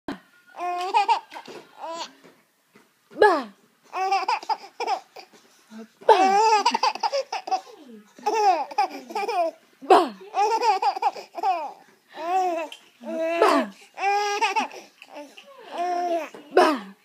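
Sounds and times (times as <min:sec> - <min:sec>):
infant laughing: 0:03.9 - 0:05.3, 0:06.1 - 0:09.6, 0:10.3 - 0:16.4.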